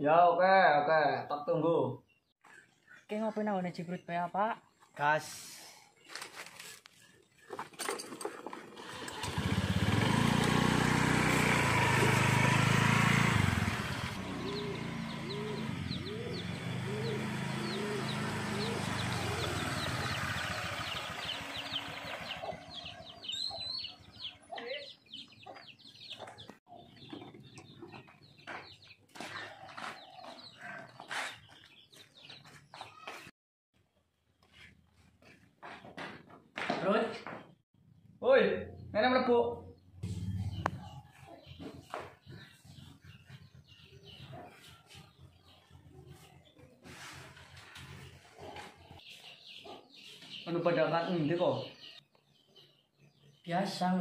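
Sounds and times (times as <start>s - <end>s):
small birds chirping: 0.0s - 10.6s, 11.5s - 36.2s, 36.9s - 54.0s
scooter engine running: 7.5s - 31.2s
chickens clucking: 14.3s - 32.9s, 40.0s - 51.3s.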